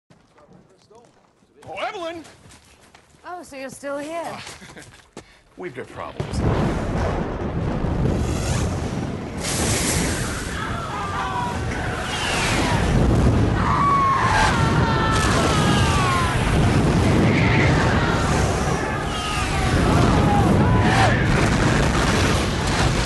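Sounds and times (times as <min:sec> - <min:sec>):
booms and explosions: 0:06.1 - 0:23.0
voice-like cries: 0:10.5 - 0:21.2.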